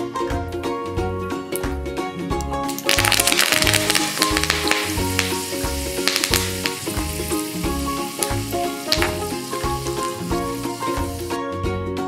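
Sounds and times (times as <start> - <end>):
music with plucked melody and bass beat: 0.0 - 12.0
leaves sizzling in hot oil: 2.8 - 11.4.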